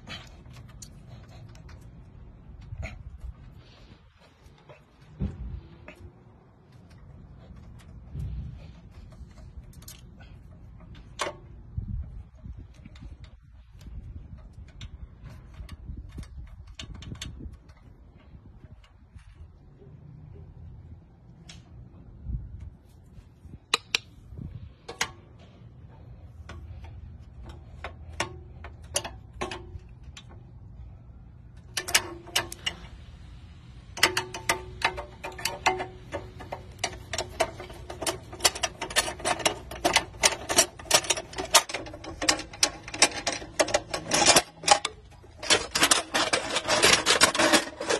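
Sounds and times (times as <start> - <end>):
tools clicking on steel wheel clamp: 6.7 - 19.6, 23.7 - 24.2, 24.8 - 33.1, 33.8 - 47.9.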